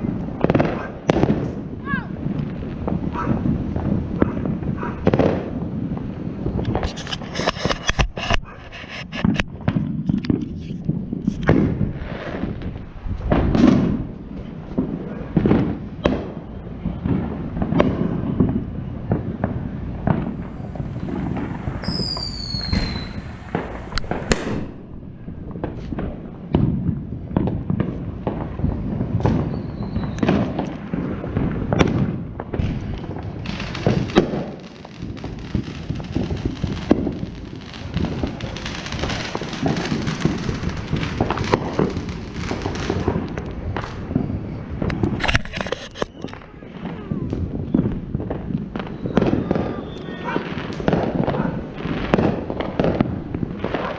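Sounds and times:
firecracker pops crackling: 0.0 - 53.9
fireworks bangs: 0.0 - 53.9
firework falling whistle: 20.1 - 24.9, 29.2 - 30.7, 32.7 - 46.5, 48.8 - 51.0.

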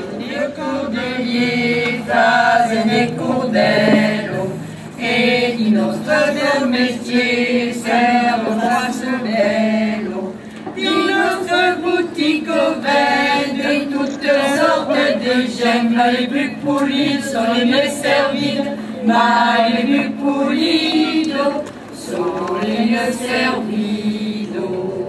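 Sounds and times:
group singing unaccompanied: 0.0 - 25.0.

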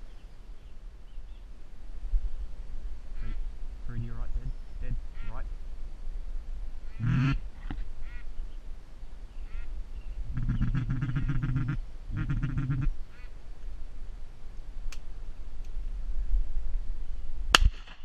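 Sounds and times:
duck quacking: 6.9 - 7.4, 8.0 - 8.3, 9.5 - 9.7, 10.4 - 13.3.

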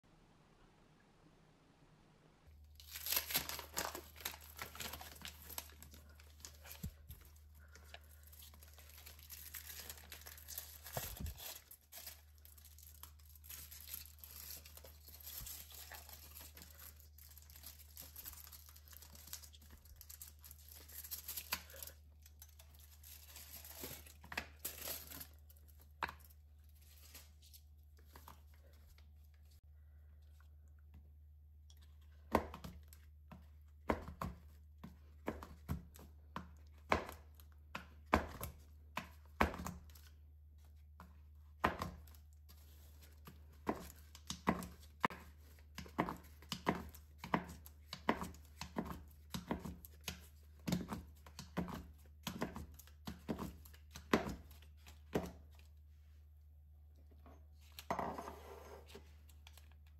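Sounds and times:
foil wrapper crinkling and tearing: 2.6 - 27.7.

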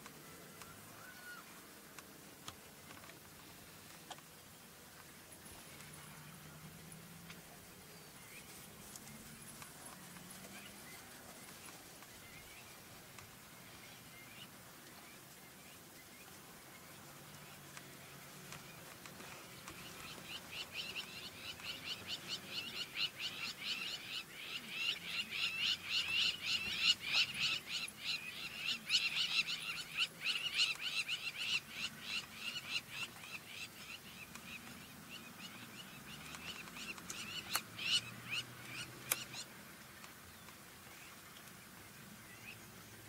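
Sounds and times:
high chirping animal calls: 19.6 - 39.5.

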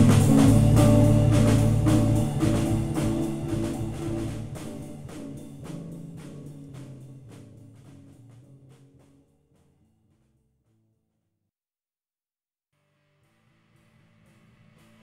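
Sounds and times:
drum and cymbal hits: 0.0 - 8.8
instrumental band music: 0.0 - 9.2
low guitar notes: 0.0 - 9.2.

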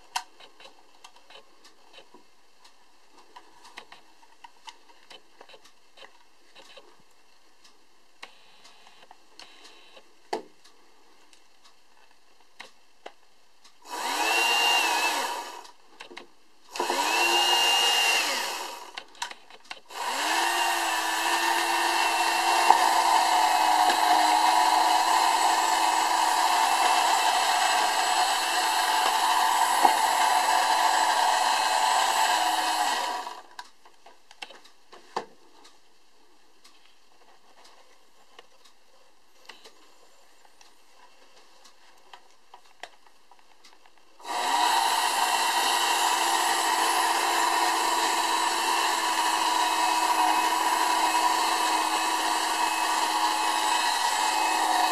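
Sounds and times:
toy motor and fan whirring: 13.8 - 15.8, 16.7 - 33.5, 44.2 - 54.9.

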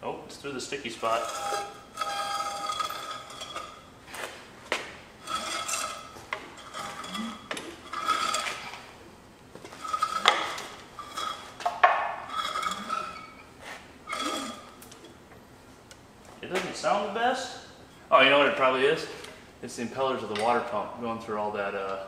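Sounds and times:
metallic squeak and scrape: 1.0 - 3.9, 5.2 - 8.9, 9.7 - 14.8.

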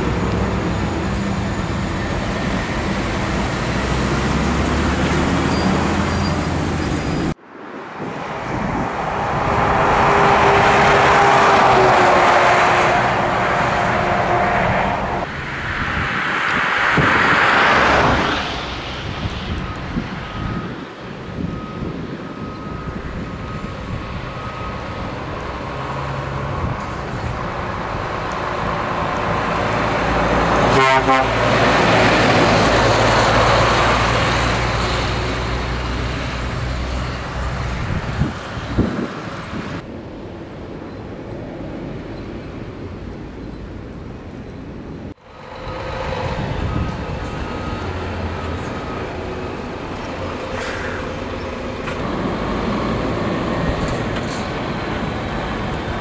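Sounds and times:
road noise: 0.0 - 56.0
truck horn toot: 30.6 - 31.6.

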